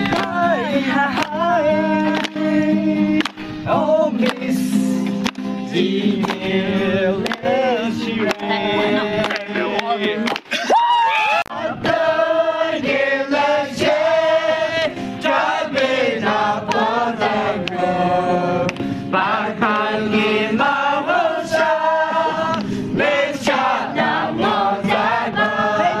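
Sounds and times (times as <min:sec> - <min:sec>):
group of voices singing: 0:00.0 - 0:10.6, 0:11.3 - 0:26.0.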